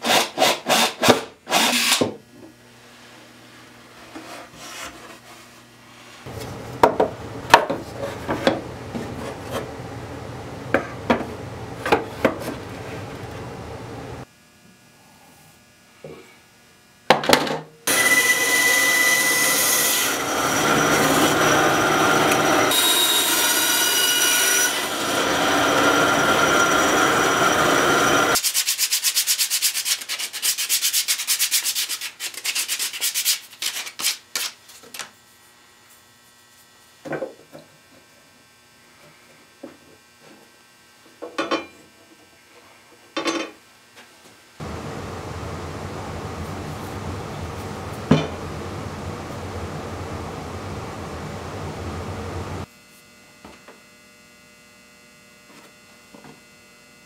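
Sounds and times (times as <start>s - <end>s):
sandpaper rubbing wood: 28.4s - 34.3s.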